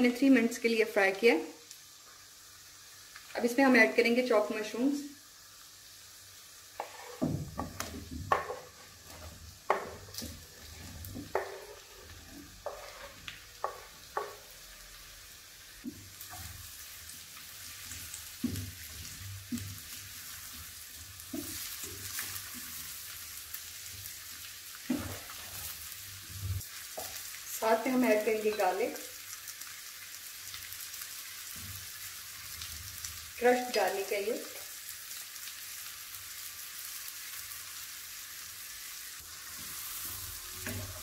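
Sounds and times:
vegetables sizzling in a pan: 0.0 - 41.0
spatula knocking and scraping pan: 6.8 - 14.6, 18.3 - 22.8, 24.8 - 25.7, 40.6 - 41.0.

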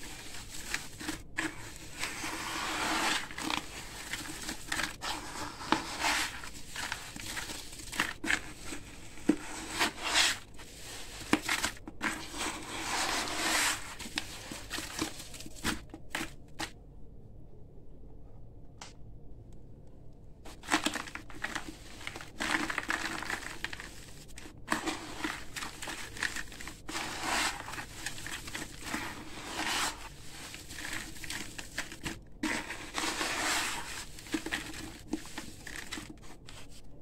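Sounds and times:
hands kneading wet gritty paste: 0.0 - 16.7, 20.5 - 37.0.

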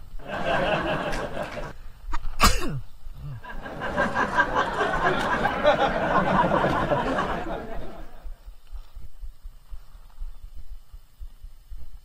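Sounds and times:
steady background noise: 0.0 - 12.0.

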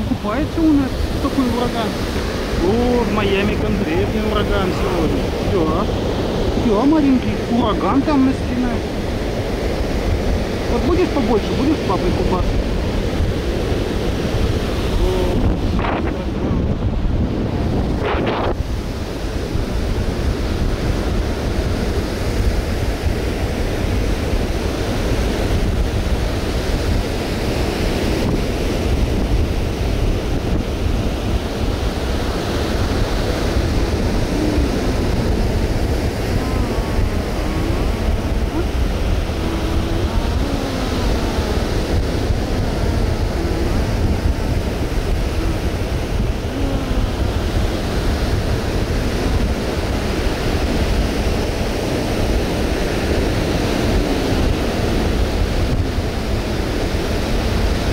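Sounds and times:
ocean surf breaking: 0.0 - 57.9
wind buffeting microphone: 0.0 - 57.9.

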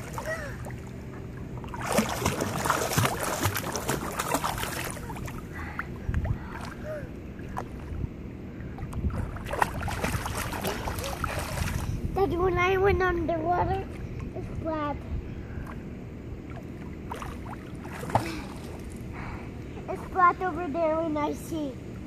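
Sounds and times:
pool water splashing: 0.0 - 12.0, 16.3 - 19.1.

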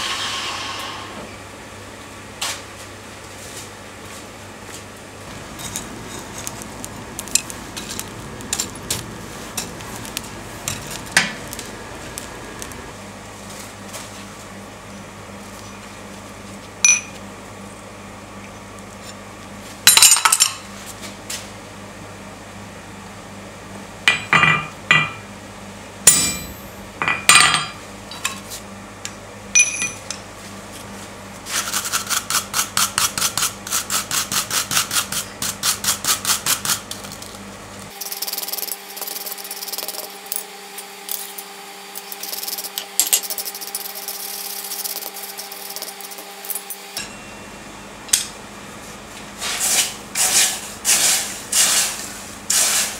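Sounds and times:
hammer striking chisel on steel: 26.1 - 27.6
wire brush scrubbing metal: 38.0 - 40.2, 41.0 - 46.6, 49.4 - 52.9
faint hum: 41.1 - 49.4.

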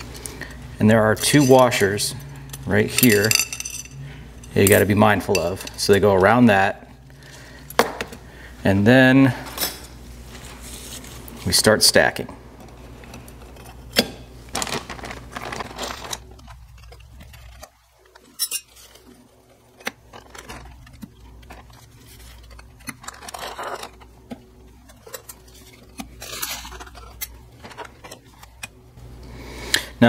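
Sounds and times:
plastic bag rustling: 12.8 - 28.6.

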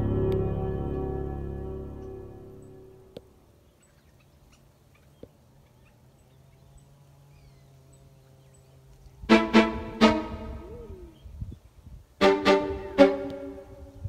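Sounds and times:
music: 0.0 - 3.1, 9.3 - 11.1, 12.2 - 14.0
soft bird chirps: 3.6 - 9.2.

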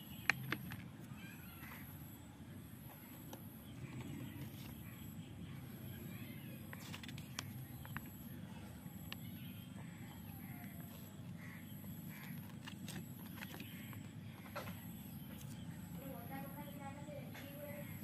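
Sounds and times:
distant bird calls: 0.0 - 18.0
low outdoor rumble: 0.0 - 18.0
paper leaflet crackling: 6.6 - 8.2.

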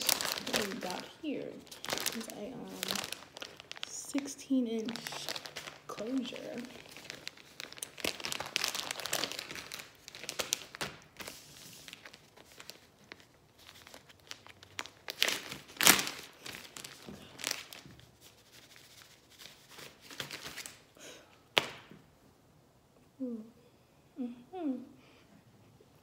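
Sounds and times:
plastic tearing: 0.0 - 18.0
plastic packaging crinkling: 0.0 - 21.0.

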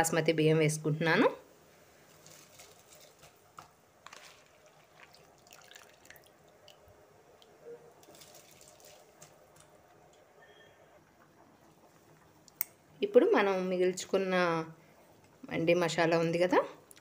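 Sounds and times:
drips and splashes: 4.0 - 9.6
water bubbling at a boil: 4.3 - 7.6.

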